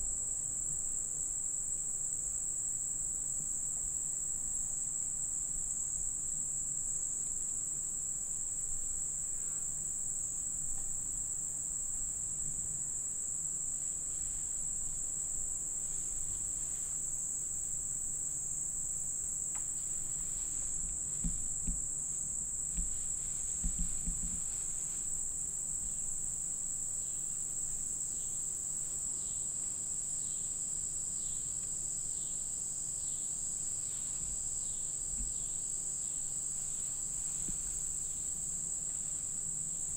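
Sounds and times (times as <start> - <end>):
insects chirping: 0.4 - 39.9
soft low knocks: 20.0 - 22.1, 22.7 - 24.8.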